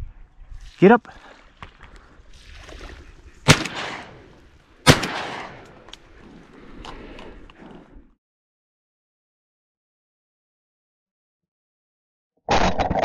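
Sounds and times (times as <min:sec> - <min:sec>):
shotgun shots with echo: 0:03.4 - 0:05.7.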